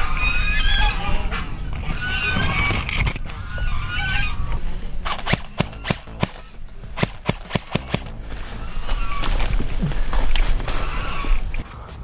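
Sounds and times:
fowl calling: 0:00.0 - 0:06.8, 0:07.8 - 0:11.6
airsoft rifle shots: 0:05.0 - 0:08.1.

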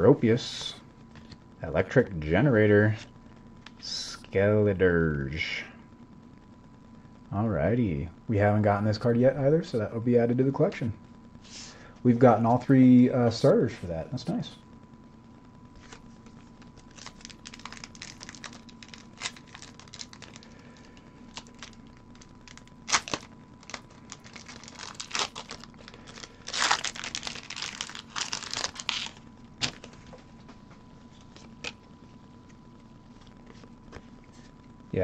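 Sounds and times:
foil wrapper crinkling and tearing: 0:15.8 - 0:30.1.

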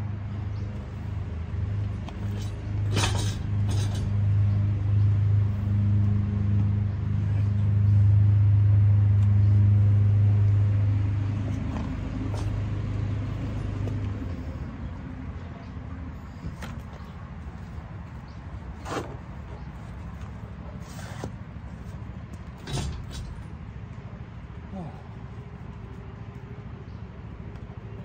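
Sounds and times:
low mechanical drone: 0:00.0 - 0:28.0
sharp metal clanks: 0:02.1 - 0:04.2, 0:22.6 - 0:23.5.

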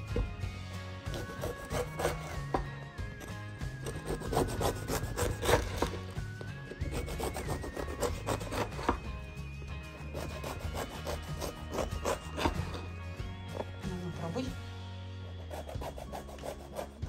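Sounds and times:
knife sawing through bread crust: 0:01.0 - 0:02.6, 0:03.2 - 0:09.0, 0:10.0 - 0:12.9, 0:15.2 - 0:17.0.

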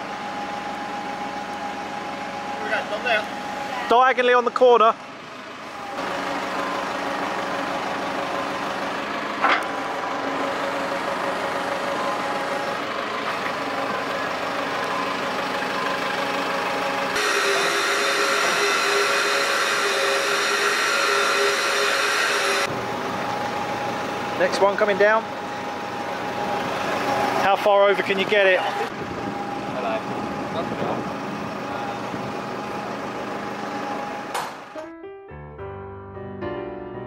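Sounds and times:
crane machine hum: 0:00.0 - 0:34.8
high whining tones: 0:17.1 - 0:22.7
sharp knock: 0:34.4 - 0:34.6.

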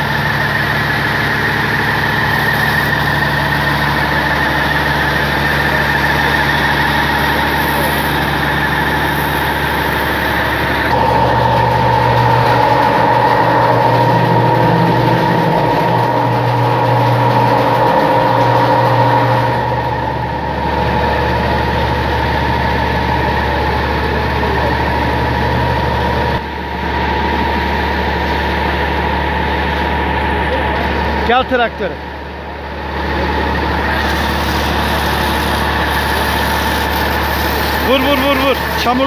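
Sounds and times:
water spraying from hose: 0:00.0 - 0:14.6, 0:32.9 - 0:39.0
tractor engine running: 0:00.0 - 0:39.0.

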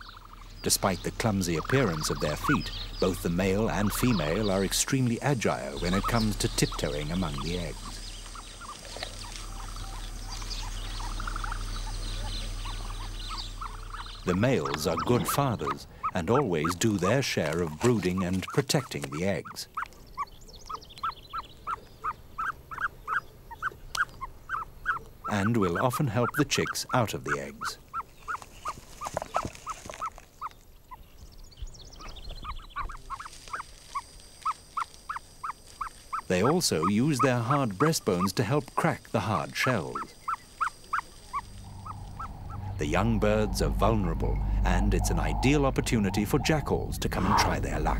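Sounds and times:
steady low hum: 0:00.0 - 0:18.8, 0:34.6 - 0:47.9
ostrich chicks peeping: 0:00.0 - 0:47.9
faint high chirps: 0:39.4 - 0:46.6.

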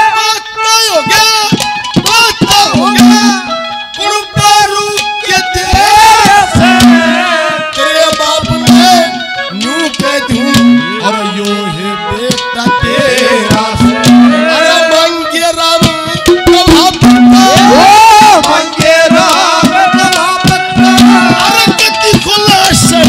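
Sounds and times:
harmonium: 0:00.0 - 0:23.0
man singing: 0:00.0 - 0:23.0
hand drum strokes: 0:15.8 - 0:23.0.

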